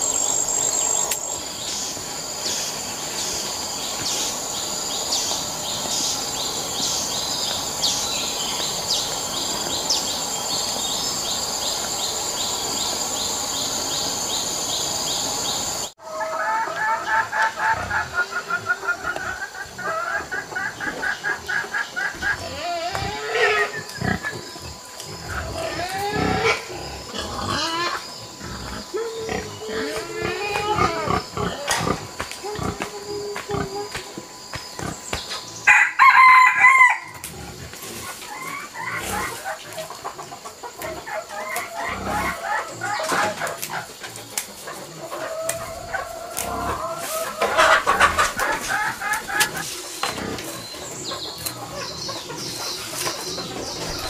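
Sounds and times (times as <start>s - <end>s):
chickens clucking: 0.0s - 54.0s
rooster crowing: 35.7s - 37.2s.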